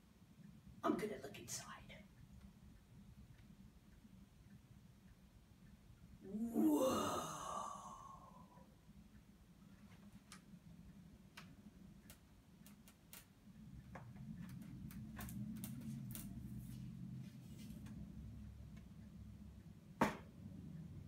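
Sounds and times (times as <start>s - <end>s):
light clicks and creaks: 11.3s - 18.1s.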